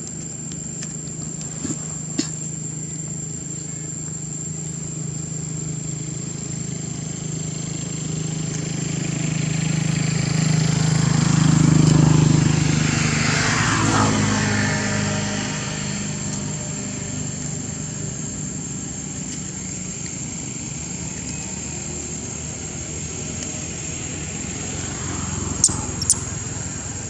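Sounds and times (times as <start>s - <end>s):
motor engine passing by: 6.7s - 18.6s, 20.6s - 27.0s.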